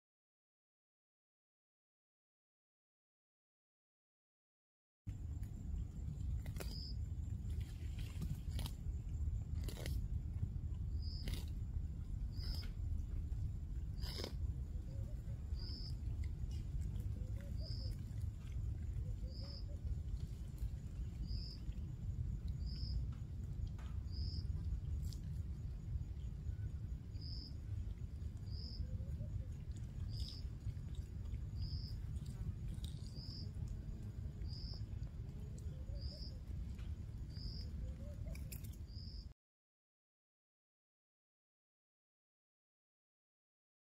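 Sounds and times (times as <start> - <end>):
low outdoor rumble: 5.1 - 39.3.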